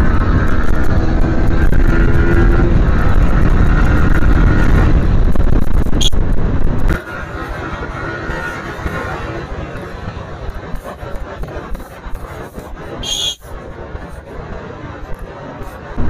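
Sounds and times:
motorcycle engine: 0:00.0 - 0:16.0
wind rush on microphone: 0:00.0 - 0:16.0.

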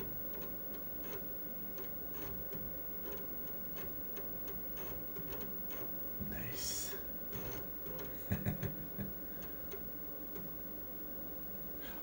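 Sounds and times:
floppy drive head clicking: 0:00.0 - 0:06.1, 0:07.3 - 0:08.4, 0:09.4 - 0:10.6
low steady hum: 0:00.0 - 0:12.0.

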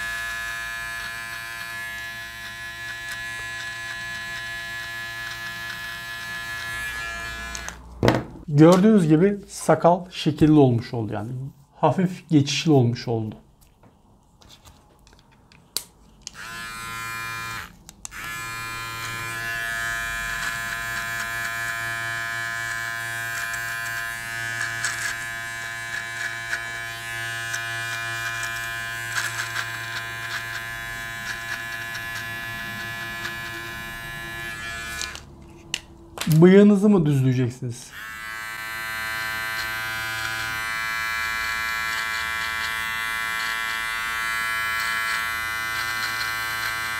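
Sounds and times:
beard trimmer buzzing: 0:00.0 - 0:07.8, 0:16.3 - 0:35.3, 0:37.9 - 0:46.9
trimmer blades cutting hair: 0:00.0 - 0:07.8, 0:16.3 - 0:35.3, 0:37.9 - 0:46.9.

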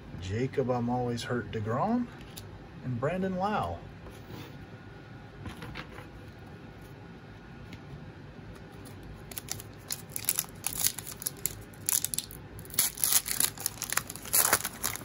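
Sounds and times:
foil wrapper crinkling and tearing: 0:08.8 - 0:15.0.

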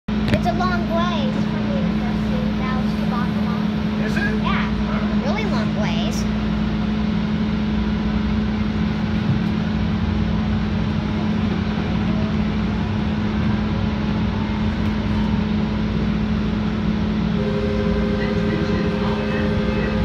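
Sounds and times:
light rail car running noise: 0:00.1 - 0:20.0
low hum: 0:00.1 - 0:20.0.

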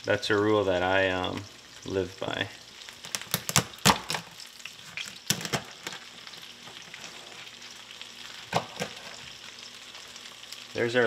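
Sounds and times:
oil sizzling in a frying pan: 0:00.0 - 0:11.0
knife cracking lobster shell: 0:03.0 - 0:04.3.

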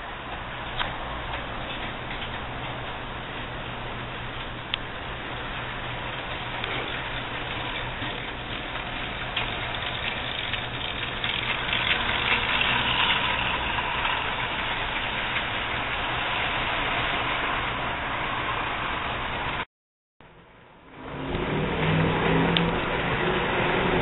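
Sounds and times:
model train wheels rolling on track: 0:00.0 - 0:19.6
model train motor whirring: 0:05.4 - 0:19.6.

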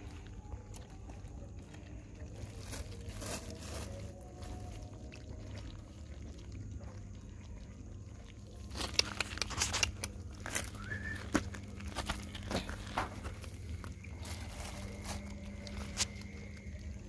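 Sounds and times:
low steady hum: 0:00.0 - 0:17.0
puppy scuffing over gritty ground: 0:02.4 - 0:05.0, 0:08.6 - 0:16.7.

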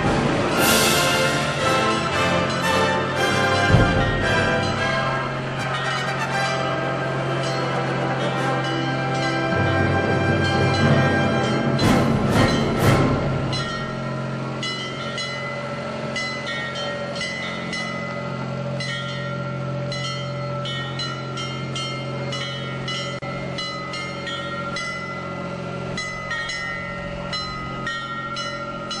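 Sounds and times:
bagpipes playing: 0:00.1 - 0:14.8.

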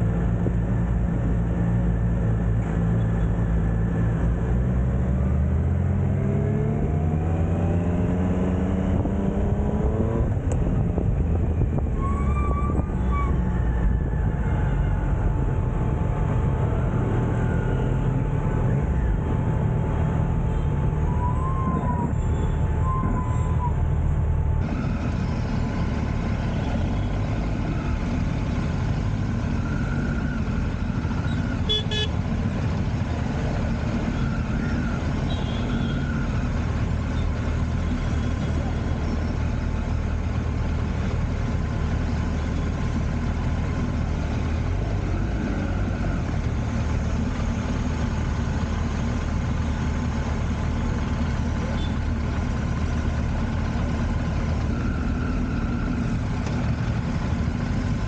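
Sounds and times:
traffic engines rumbling: 0:00.0 - 0:58.0
car horn honks: 0:31.6 - 0:32.1.

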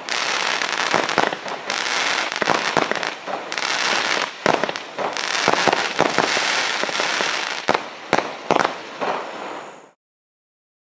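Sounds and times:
firework bangs: 0:00.0 - 0:10.0
firework crackle: 0:00.0 - 0:10.0.

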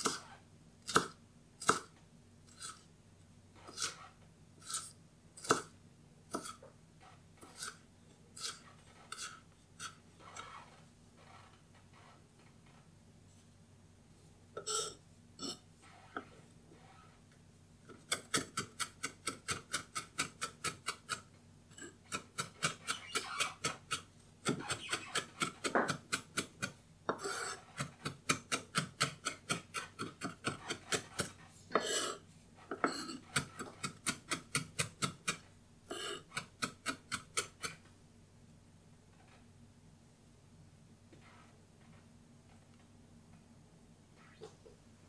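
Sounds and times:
knife chopping on wooden board: 0:00.9 - 0:01.9, 0:24.4 - 0:31.9
knife scraping board: 0:02.5 - 0:02.9, 0:03.6 - 0:05.7, 0:07.4 - 0:07.8, 0:08.4 - 0:10.7, 0:21.8 - 0:37.8.

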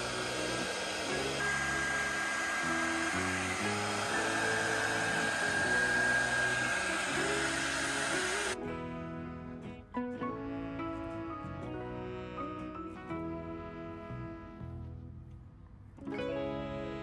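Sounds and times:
hair dryer blowing: 0:00.0 - 0:08.6
soft background music: 0:00.0 - 0:17.0.

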